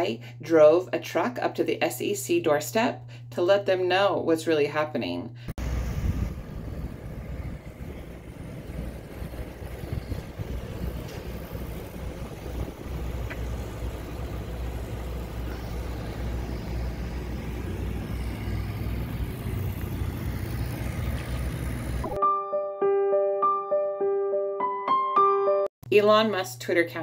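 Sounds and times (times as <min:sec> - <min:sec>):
vehicle engine rumbling: 0:05.6 - 0:22.2.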